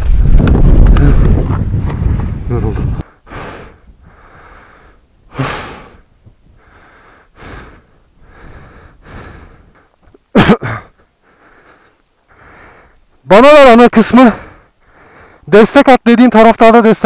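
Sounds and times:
person breathing hard: 3.0 - 10.0, 10.7 - 13.1, 14.3 - 15.5.

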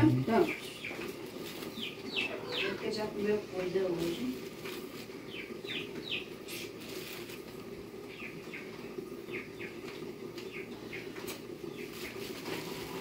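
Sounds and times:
bird chirping: 0.4 - 3.0, 5.2 - 6.7, 8.1 - 12.3.

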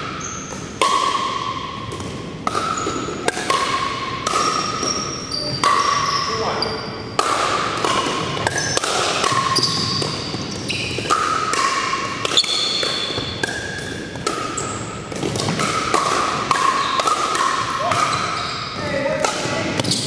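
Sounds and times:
paddles striking plastic balls: 0.5 - 6.1, 7.2 - 18.4
balls bouncing on hardwood floor: 7.2 - 20.0.

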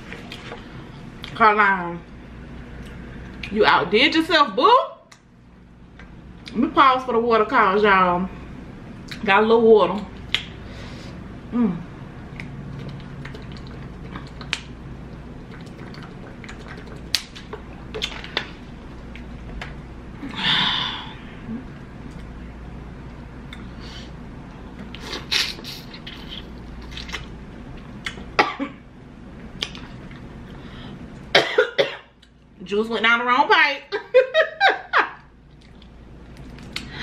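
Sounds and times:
mouth clicks and smacks chewing: 10.0 - 10.6, 12.2 - 19.8, 24.8 - 28.3, 29.5 - 30.3, 35.5 - 36.9
person coughing: 28.4 - 28.8, 31.4 - 32.1.

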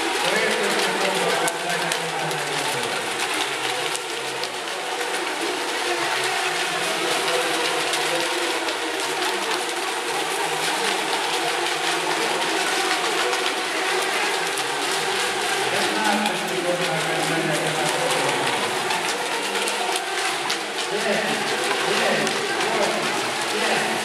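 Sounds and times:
churning water: 0.0 - 24.0.

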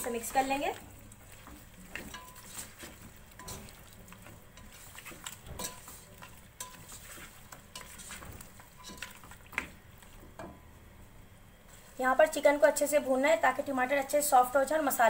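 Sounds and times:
food sizzling in oil: 0.0 - 10.8
spoon scraping and clinking a pot: 1.4 - 9.8.

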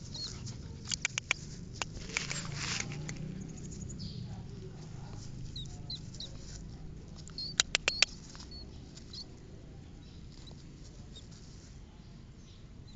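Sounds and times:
rat squeaking: 5.3 - 9.4
loud sharp clicks: 7.4 - 8.2.

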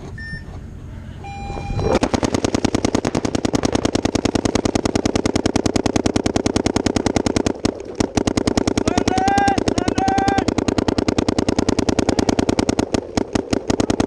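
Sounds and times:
short steady tone: 0.2 - 2.0
paintball markers firing rapidly: 2.0 - 14.0.

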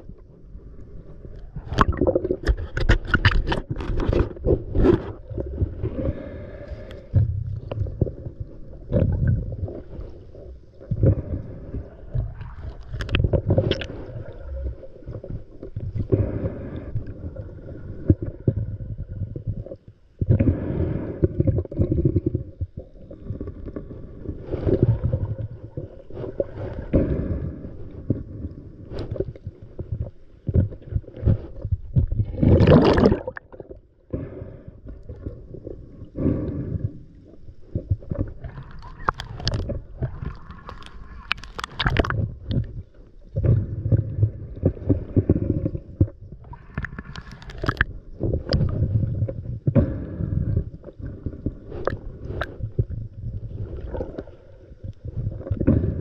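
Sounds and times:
bubbles gurgling underwater: 1.5 - 3.6, 7.2 - 10.1, 10.9 - 28.6, 31.9 - 34.3, 37.7 - 50.3
diver breathing through regulator: 5.4 - 7.4, 16.0 - 18.9, 20.3 - 22.4, 23.2 - 30.0, 34.1 - 37.5, 43.4 - 56.0.

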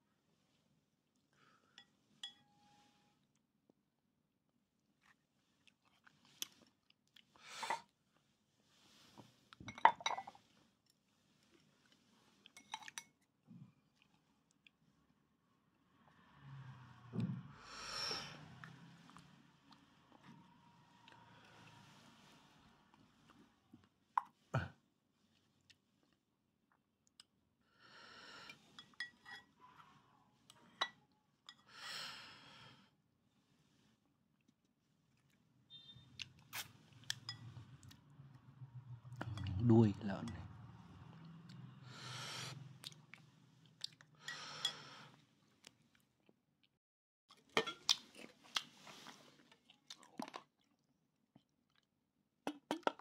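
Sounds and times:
person breathing: 17.5 - 18.5, 27.7 - 28.6, 41.8 - 42.6.

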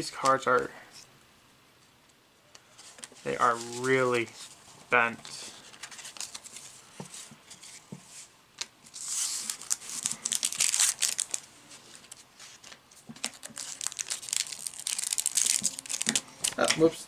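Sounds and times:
foil wrapper crinkling and tearing: 8.9 - 16.7.

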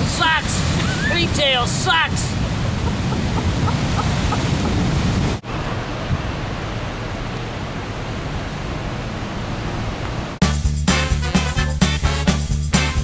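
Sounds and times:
ocean surf washing: 0.0 - 10.4
upbeat swing music: 10.4 - 13.0.

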